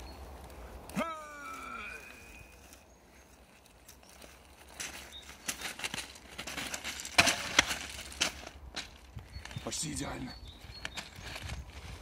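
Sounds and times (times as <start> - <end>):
footsteps crunching on ballast: 0.2 - 12.0.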